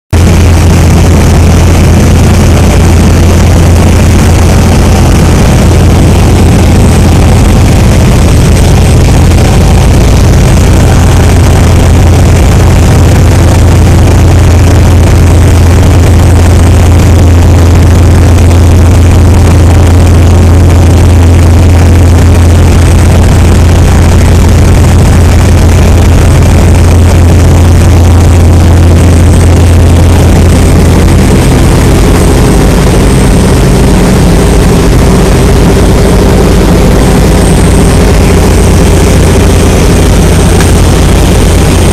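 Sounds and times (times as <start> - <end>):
motorboat engine droning: 0.1 - 41.9
churning water rushing: 0.2 - 18.0.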